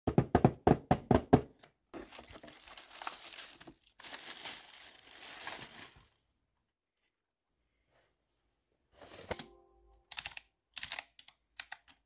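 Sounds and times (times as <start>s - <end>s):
cardboard and packaging rustling: 1.9s - 6.2s.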